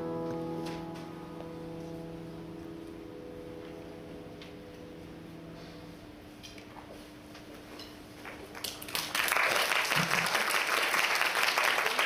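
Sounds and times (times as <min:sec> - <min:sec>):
piano chord: 0:00.0 - 0:06.4
audience applause: 0:08.5 - 0:12.0.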